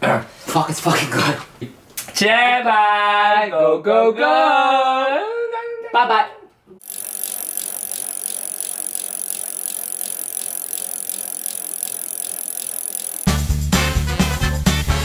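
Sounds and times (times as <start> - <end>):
mechanical rattling whirr: 6.8 - 13.3.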